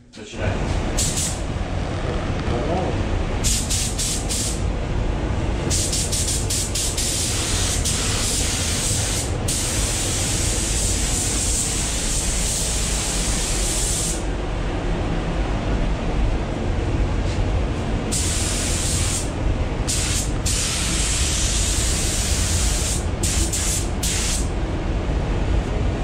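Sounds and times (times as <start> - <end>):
ventilation low rumble: 0.0 - 26.0
spray gun hissing: 1.0 - 1.4, 3.4 - 4.6, 5.7 - 14.3, 18.1 - 19.3, 19.9 - 24.5.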